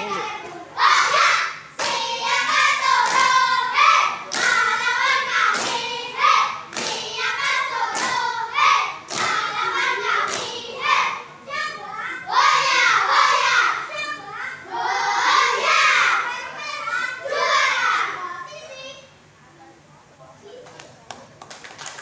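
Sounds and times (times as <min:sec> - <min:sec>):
children chanting a cheer: 0:00.0 - 0:19.0
sharp rhythmic thump: 0:06.8 - 0:08.3.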